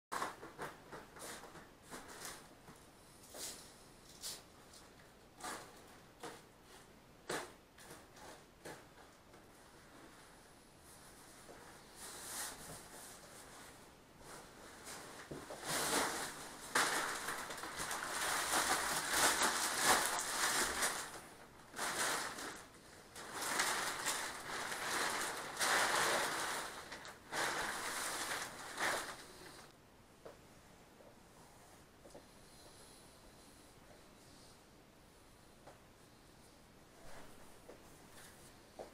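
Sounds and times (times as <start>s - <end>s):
plastic film crinkling: 14.8s - 29.7s.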